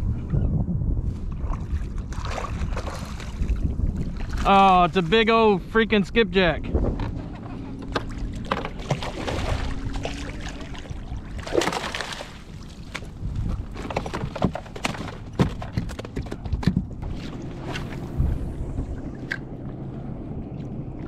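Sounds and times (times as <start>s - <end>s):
fish thrashing and splashing: 7.8s - 18.1s.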